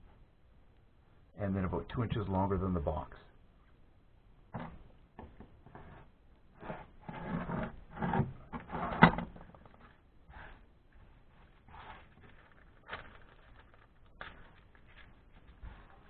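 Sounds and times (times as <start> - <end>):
paper rustling: 10.9 - 16.0
knife scraping through paper: 11.3 - 16.0.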